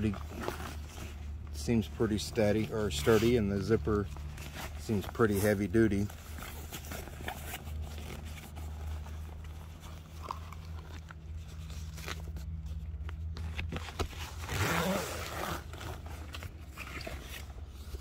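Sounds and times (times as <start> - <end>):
canvas rustling: 0.0 - 18.0
zipper being pulled open: 14.0 - 17.6.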